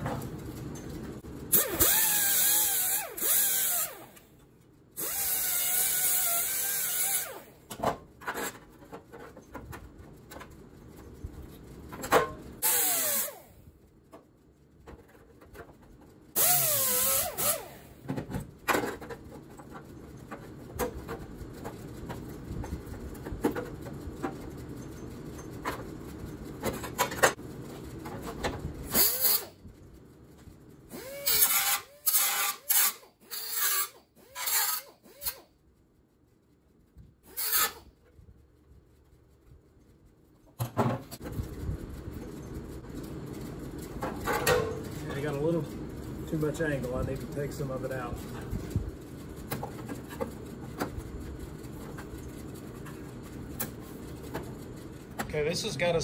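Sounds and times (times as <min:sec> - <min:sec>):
air die grinder whining: 0:01.3 - 0:04.4, 0:05.0 - 0:07.7, 0:12.6 - 0:13.7, 0:16.3 - 0:18.1, 0:28.8 - 0:29.6, 0:30.9 - 0:35.5, 0:37.2 - 0:37.9.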